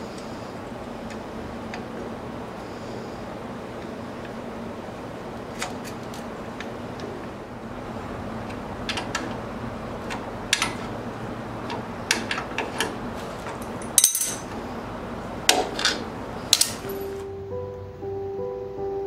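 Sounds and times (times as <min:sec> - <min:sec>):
steady background noise: 0:00.0 - 0:19.0
wrench and pliers clinking on steel: 0:13.5 - 0:14.5, 0:15.8 - 0:17.2
soft music notes: 0:16.2 - 0:19.0.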